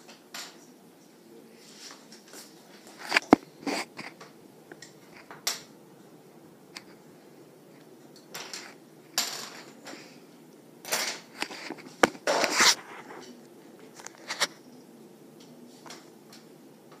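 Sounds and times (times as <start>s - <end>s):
ceiling fan whirring: 0.0s - 17.0s.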